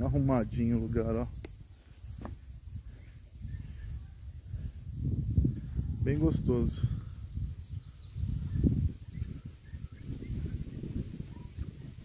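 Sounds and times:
low rumble on microphone: 0:00.0 - 0:12.0
faint bird chirp: 0:01.1 - 0:04.8, 0:06.9 - 0:12.0.

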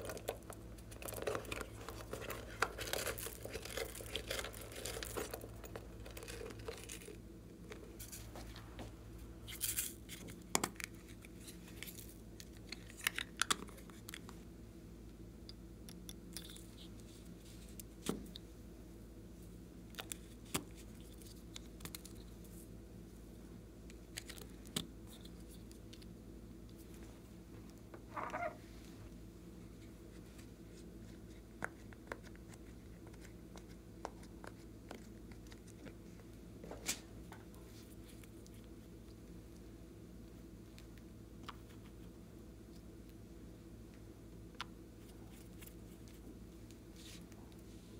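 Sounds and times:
sticky slime crackling: 0:00.0 - 0:08.2.

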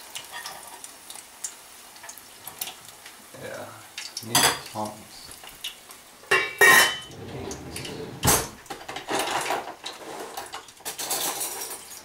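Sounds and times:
metal utensils clanking on a pot: 0:00.2 - 0:00.9, 0:06.3 - 0:12.0
utensils rattling in a drawer: 0:07.1 - 0:12.0.

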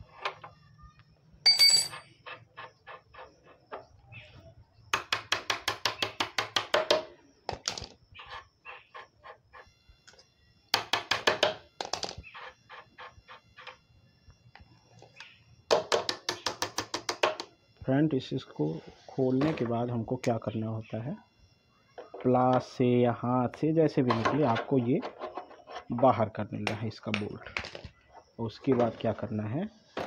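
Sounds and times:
spanner metallic clink: 0:01.5 - 0:02.1.

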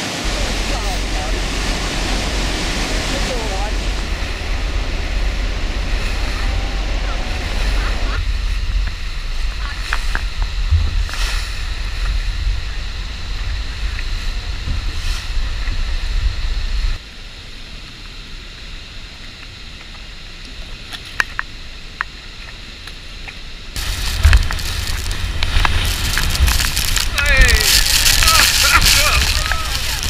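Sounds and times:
speedboat rushing water: 0:00.0 - 0:17.0, 0:23.8 - 0:30.0
wind buffeting microphone: 0:00.0 - 0:17.0, 0:23.8 - 0:30.0.

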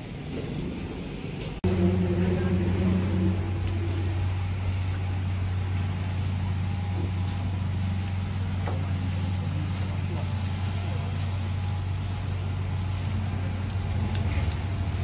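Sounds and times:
truck engine idling: 0:00.0 - 0:15.0
leafy branches snapping and rustling: 0:03.5 - 0:15.0.

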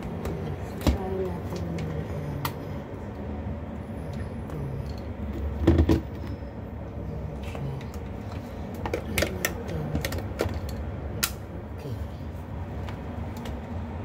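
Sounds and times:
steady low rumble: 0:00.0 - 0:14.0
fan handling thump: 0:05.6 - 0:06.2.

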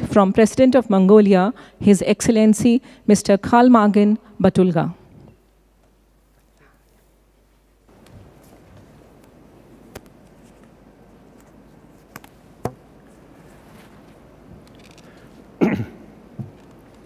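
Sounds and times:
man coughing into microphone: 0:15.6 - 0:16.1
microphone handling clicks and taps: 0:16.4 - 0:16.8.

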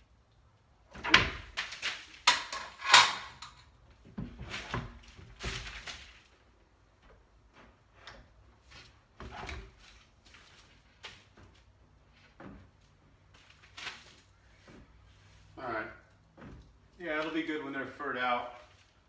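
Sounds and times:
wall cabinet being shifted: 0:00.9 - 0:06.3, 0:07.1 - 0:17.4.

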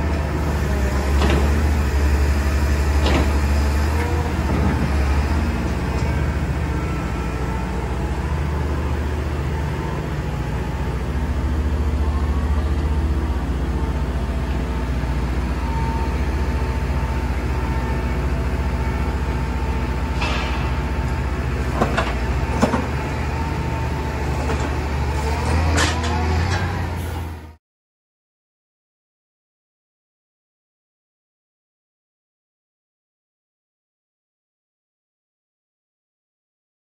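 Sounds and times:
diesel engine droning: 0:00.0 - 0:27.6.

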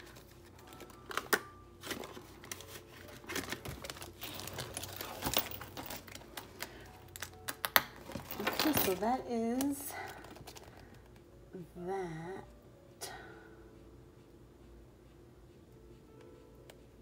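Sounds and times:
envelope clicks: 0:00.0 - 0:09.0
plastic crinkling: 0:00.0 - 0:09.0.

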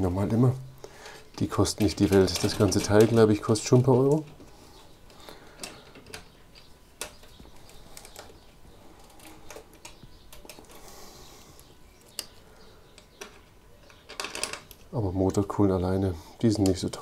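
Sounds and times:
small motor parts clicking and tapping: 0:01.0 - 0:10.8.

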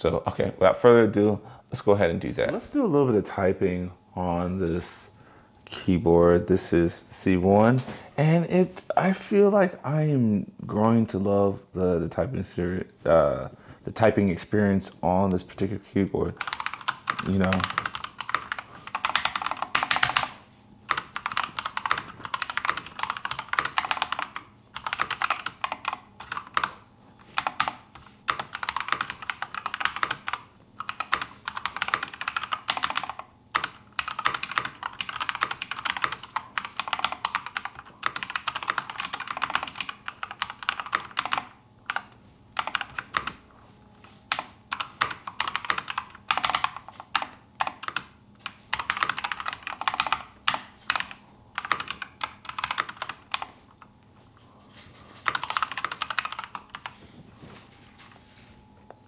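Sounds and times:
mechanical keyboard typing: 0:16.4 - 0:43.4, 0:44.3 - 0:53.6, 0:55.2 - 0:56.9.

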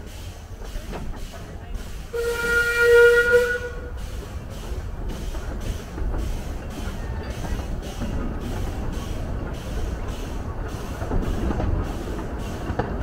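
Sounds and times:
train rumbling: 0:00.0 - 0:13.0
steam locomotive whistle: 0:02.1 - 0:04.0.

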